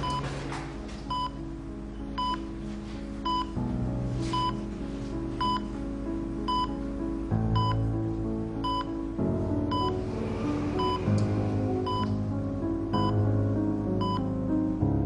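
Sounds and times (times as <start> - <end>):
patient monitor beeping: 0.0 - 2.5, 3.2 - 3.6, 4.3 - 4.6, 5.4 - 5.7, 6.5 - 6.8, 7.6 - 7.9, 8.6 - 9.0, 9.7 - 10.0, 10.8 - 12.2, 12.9 - 13.2, 14.0 - 14.3
slow background music: 0.0 - 15.0.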